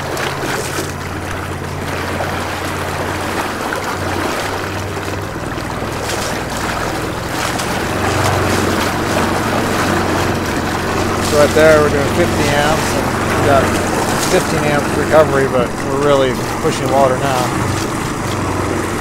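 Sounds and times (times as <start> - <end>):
electric motor hum: 0.0 - 19.0
propeller churning water: 0.0 - 19.0.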